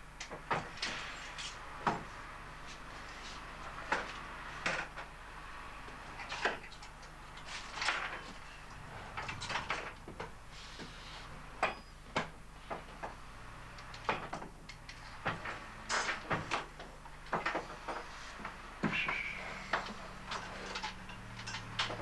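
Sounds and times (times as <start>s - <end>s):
hand tools clicking and scraping: 17.3s - 22.0s.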